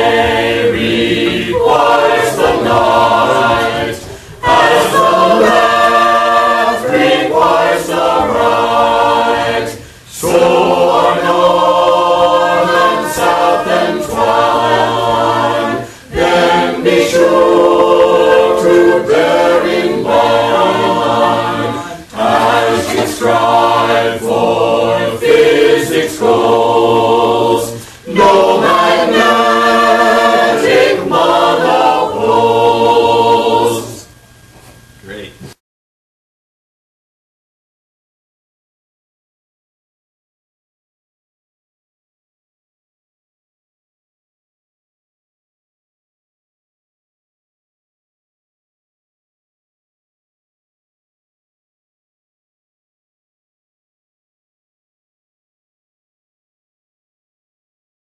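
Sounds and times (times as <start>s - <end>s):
group of voices singing: 0.0s - 34.2s.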